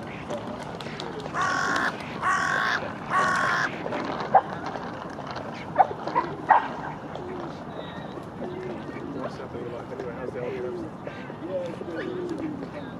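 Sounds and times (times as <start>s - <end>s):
crow cawing: 1.4s - 3.7s.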